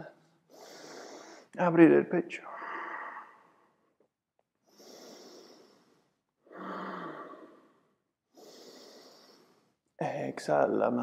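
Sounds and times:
person breathing deeply: 0.5s - 1.6s, 2.4s - 3.8s, 4.6s - 9.8s.

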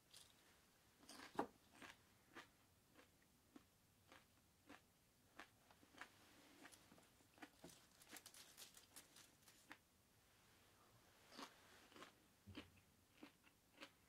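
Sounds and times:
dry crackling of dried sprigs: 7.4s - 9.8s.

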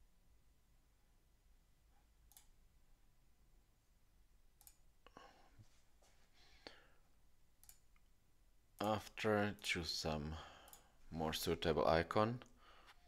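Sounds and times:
computer mouse clicks: 2.3s - 2.6s, 4.6s - 4.8s, 7.6s - 8.1s.

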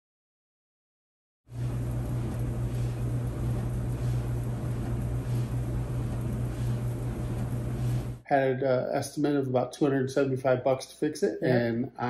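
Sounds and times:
dryer drum rushing: 1.5s - 8.2s
dryer motor hum: 1.5s - 8.2s.

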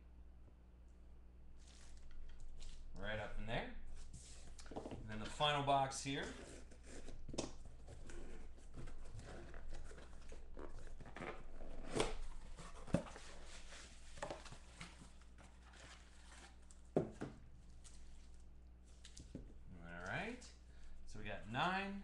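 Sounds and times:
cardboard rustling: 6.1s - 19.6s
cardboard flaps tearing: 6.8s - 15.0s.

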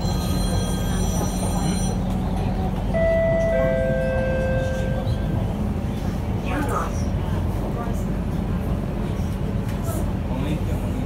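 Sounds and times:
two-note whine: 2.9s - 5.4s.

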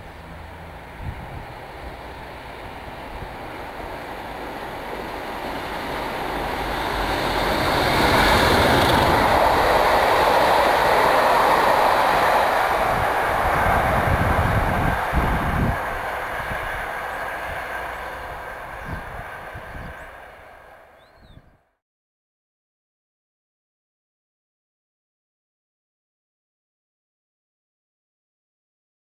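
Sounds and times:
train coaches rumbling: 0.0s - 21.4s
diesel locomotive passing: 0.0s - 21.6s.

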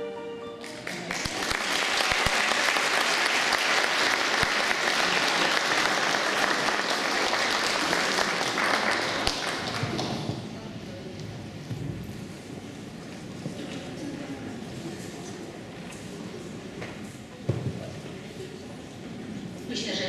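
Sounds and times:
choir and keyboard note: 0.0s - 0.8s
audience applause: 0.6s - 10.3s.

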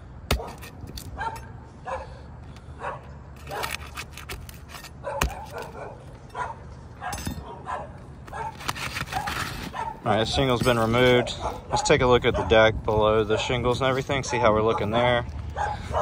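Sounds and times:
shingle scraping and cracking: 0.3s - 1.6s, 3.3s - 12.0s
dog barking: 1.2s - 2.2s, 2.8s - 3.8s, 5.0s - 10.1s, 11.2s - 12.6s, 14.2s - 16.0s.

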